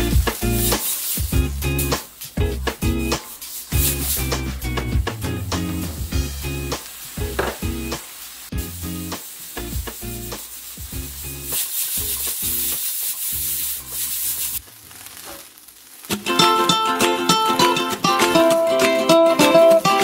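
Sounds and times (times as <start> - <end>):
rice frying in a pan: 0.0 - 5.1, 6.2 - 18.7
loud sizzling hiss: 0.0 - 20.0
music with plucked strings: 4.0 - 7.9, 16.1 - 20.0.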